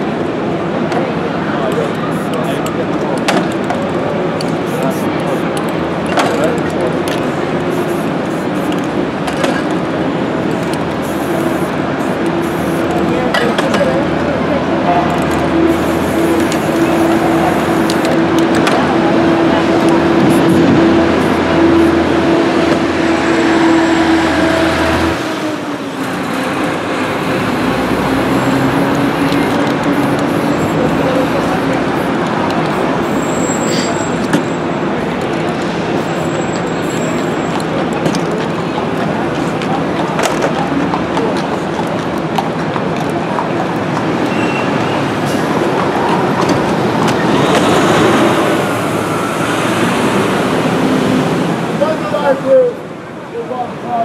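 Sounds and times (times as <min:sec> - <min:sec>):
street traffic: 0:00.0 - 0:54.0.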